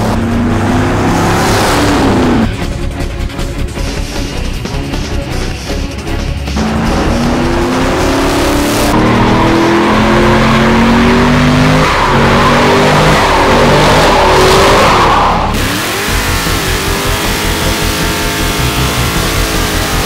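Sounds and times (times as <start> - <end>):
tires squealing on asphalt: 0.0 - 2.5, 6.6 - 20.0
car engine revving high: 0.0 - 2.6, 6.6 - 20.0.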